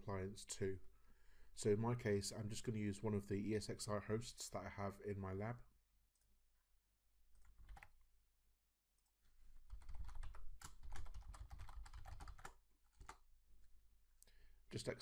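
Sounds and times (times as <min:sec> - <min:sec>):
computer keyboard typing: 0:07.4 - 0:07.9, 0:09.7 - 0:13.2.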